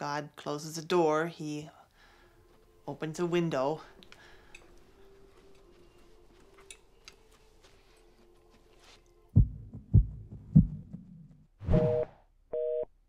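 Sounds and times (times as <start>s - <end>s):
deep thuds: 9.4s - 11.4s.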